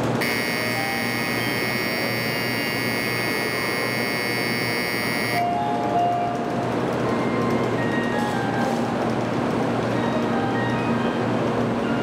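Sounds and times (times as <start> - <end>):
low station hum: 0.0 - 5.4
electronic departure bell buzzing: 0.0 - 5.5.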